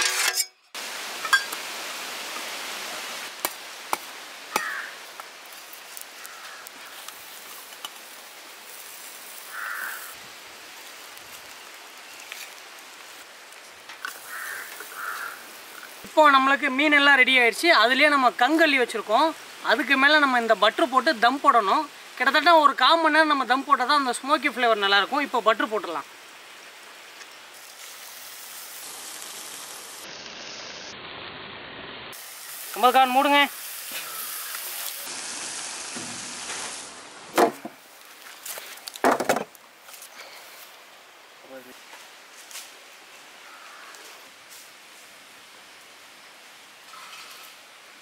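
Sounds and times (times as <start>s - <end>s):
steel ladle scraping in ash: 0.0s - 1.6s
butter sizzling on embers: 0.0s - 46.0s
outdoor hiss: 0.0s - 48.0s.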